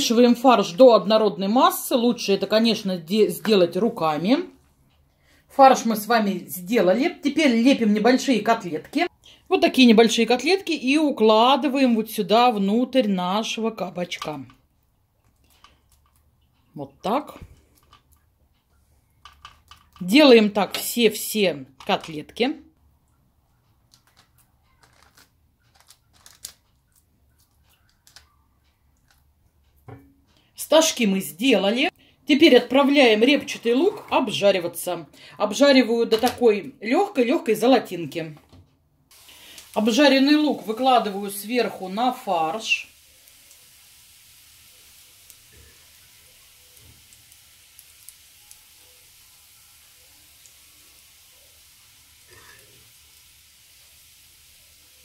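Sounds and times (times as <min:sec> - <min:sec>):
faint hiss: 0:39.1 - 0:55.0.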